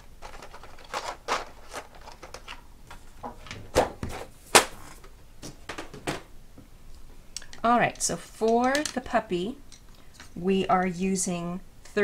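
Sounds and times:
pencils clicking and clacking: 0:00.0 - 0:03.6, 0:07.4 - 0:11.0.

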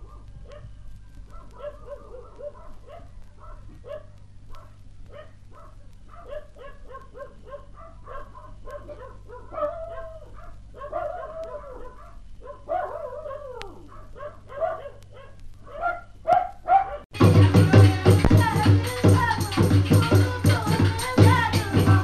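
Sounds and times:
animal yelps and calls: 0:01.4 - 0:17.0.

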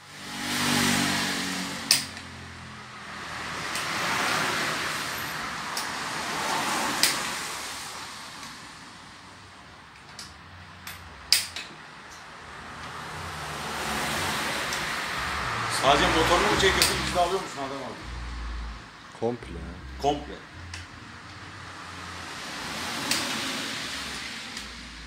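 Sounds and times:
rushing noise: 0:12.6 - 0:25.0.

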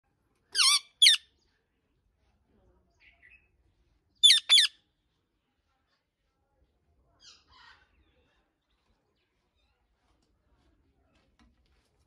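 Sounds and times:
parakeet squawking: 0:00.6 - 0:01.2, 0:04.2 - 0:04.7.

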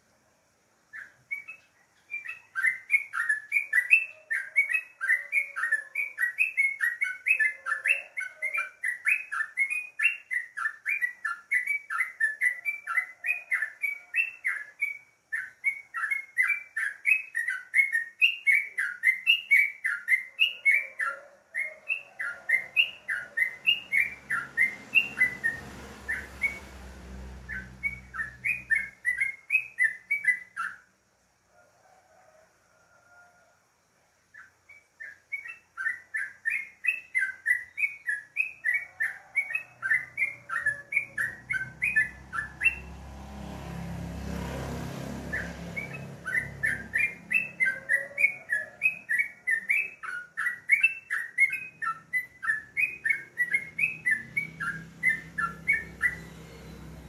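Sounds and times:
bird chirping song: 0:00.0 - 0:31.0, 0:33.1 - 0:57.0.

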